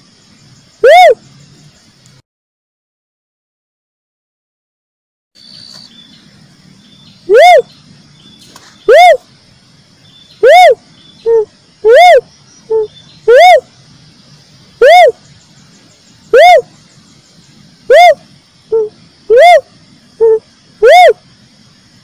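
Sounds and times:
dove call rising and falling: 0.8 - 1.2, 7.3 - 7.7, 8.5 - 9.2, 10.4 - 13.7, 14.7 - 15.4, 16.1 - 17.0, 17.8 - 21.2.

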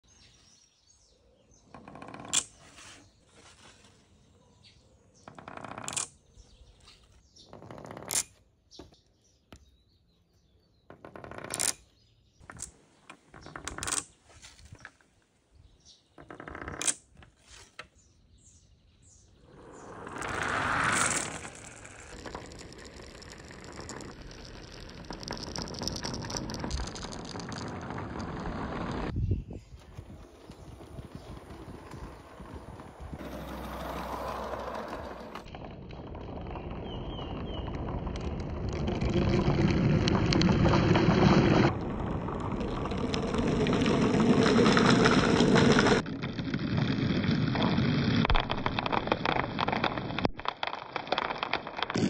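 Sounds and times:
marble clacking against marbles: 5.3 - 6.2, 10.9 - 14.9, 16.2 - 17.3, 19.6 - 29.1, 34.4 - 52.0
marbles rolling in plastic gutter: 10.9 - 11.8, 12.4 - 15.0, 19.5 - 29.1, 29.8 - 52.0
rush of many marbles rolling: 19.5 - 29.1, 30.0 - 52.0.

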